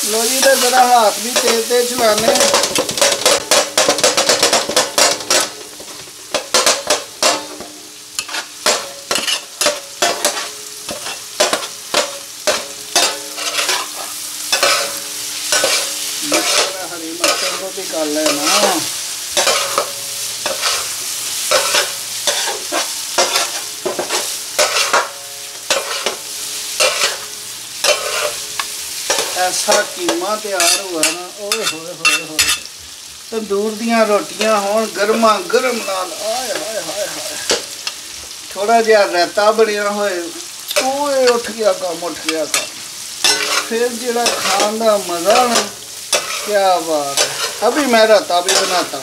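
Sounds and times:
minced meat sizzling: 0:00.0 - 0:49.0
metal spatula scraping griddle: 0:08.2 - 0:32.7, 0:42.4 - 0:49.0.

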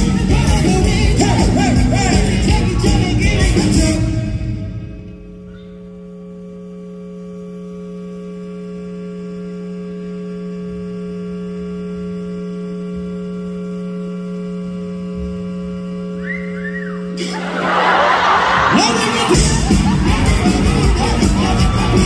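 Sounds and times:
band music: 0:00.0 - 0:05.8, 0:16.7 - 0:22.0
electrical hum from amplification: 0:00.0 - 0:22.0.

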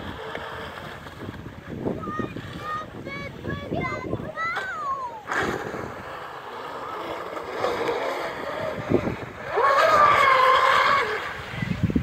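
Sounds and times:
model boat motor whine: 0:05.4 - 0:12.0.

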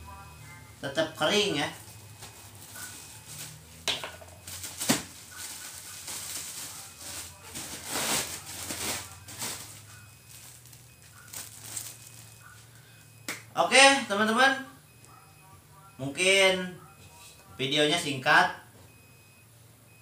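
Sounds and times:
plastic bag rustling: 0:01.8 - 0:12.8.

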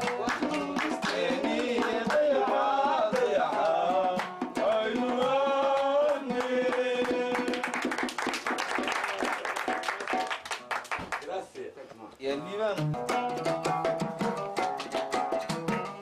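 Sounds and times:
hand percussion beat: 0:00.0 - 0:11.0, 0:12.5 - 0:16.0
plucked oud: 0:12.4 - 0:16.0.

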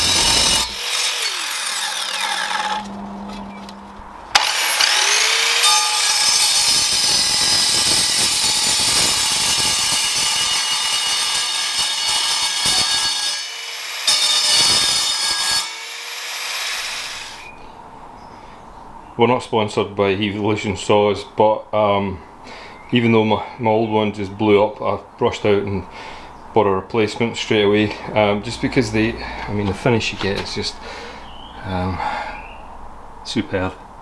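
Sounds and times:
chop saw grinding through metal: 0:00.0 - 0:03.2, 0:04.3 - 0:17.5.

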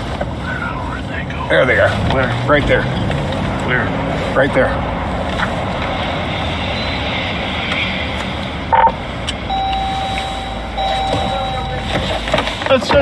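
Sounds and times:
car interior driving noise: 0:00.0 - 0:13.0
loud electronic beep: 0:06.7 - 0:07.1, 0:08.7 - 0:12.2
steady high electronic tone: 0:08.7 - 0:12.2.

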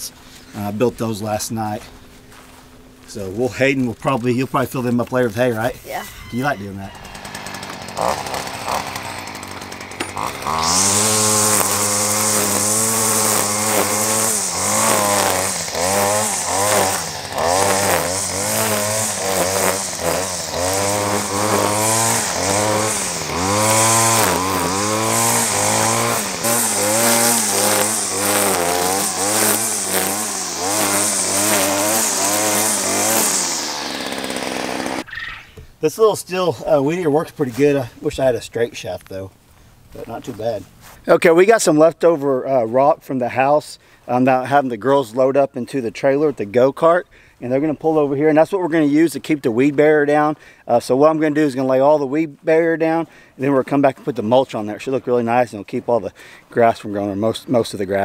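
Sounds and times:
trimmer line hissing: 0:05.6 - 0:35.6
string trimmer engine revving: 0:06.3 - 0:35.1.

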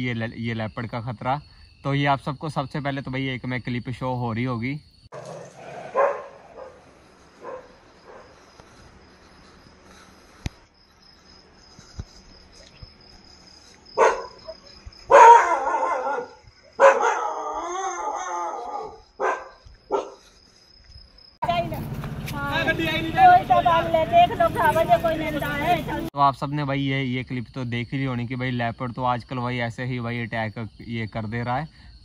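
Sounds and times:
dog barking and yelping: 0:05.1 - 0:08.5, 0:14.0 - 0:20.3
dog wavering cry: 0:14.0 - 0:19.3.

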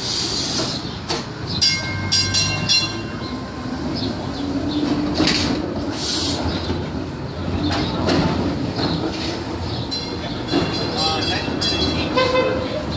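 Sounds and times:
streetcar wheels rumbling on rails: 0:00.0 - 0:12.9.

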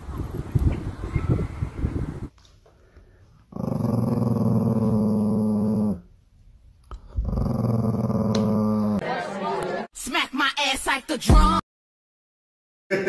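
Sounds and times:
small dog growling: 0:03.5 - 0:06.1, 0:06.9 - 0:09.0.

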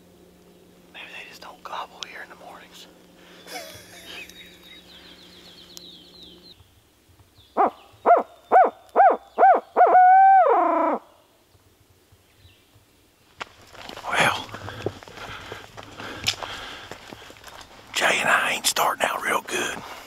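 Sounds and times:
owl call hoots: 0:07.6 - 0:11.1.

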